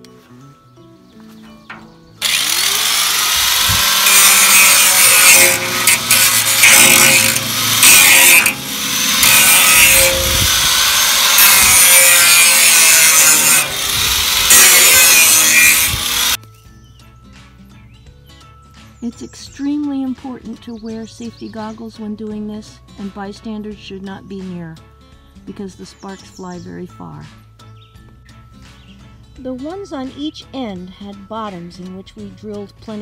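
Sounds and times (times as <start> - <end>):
angle grinder grinding metal: 2.2 - 16.4.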